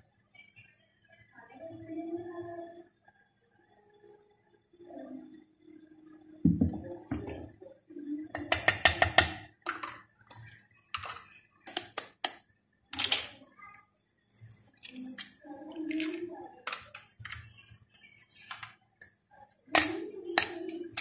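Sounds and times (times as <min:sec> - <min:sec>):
dull knock on mixing bowl: 0:06.5 - 0:07.3
ladle and eggshell tapping bowl: 0:08.4 - 0:10.4, 0:19.7 - 0:21.0.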